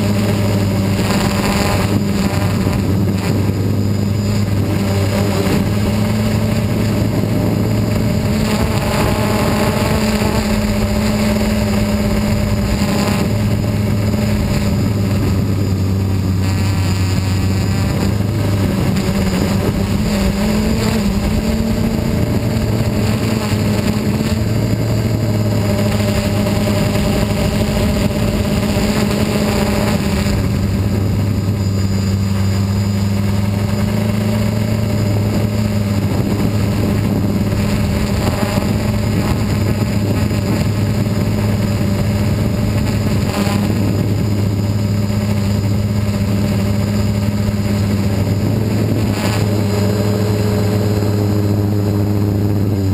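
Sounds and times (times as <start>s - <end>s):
drone motors and propellers buzzing: 0.0s - 52.9s.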